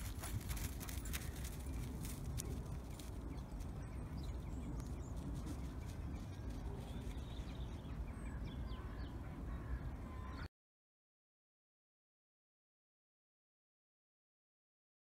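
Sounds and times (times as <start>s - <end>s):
small birds chirping: 0.0s - 10.5s
wind rumble on microphone: 0.0s - 10.5s.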